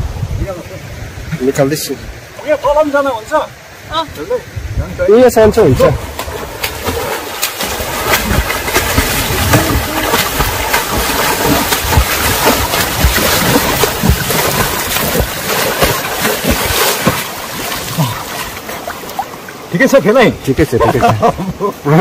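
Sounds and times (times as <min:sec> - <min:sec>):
river water splashing: 0:05.6 - 0:22.0
person swimming: 0:06.0 - 0:19.6.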